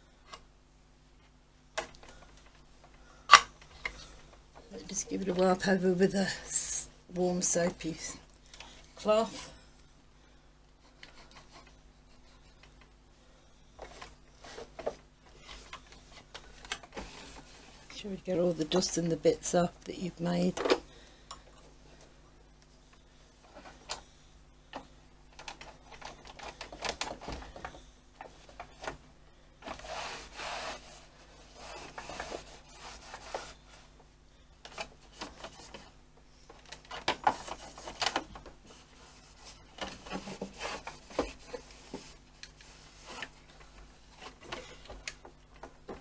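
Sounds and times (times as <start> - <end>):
cloth rubbing on machine: 29.6 - 34.0.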